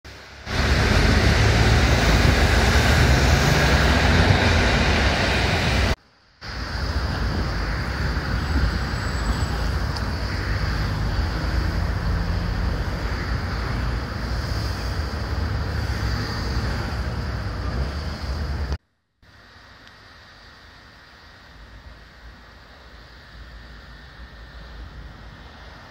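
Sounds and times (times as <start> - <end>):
traffic on wet street: 0.1 - 18.8, 21.2 - 25.9
wind buffeting microphone: 0.5 - 18.8.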